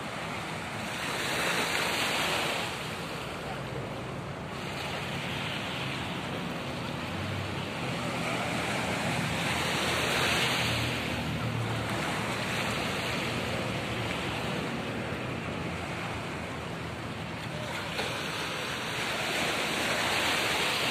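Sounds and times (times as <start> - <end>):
small waves breaking on a beach: 0.0 - 20.9.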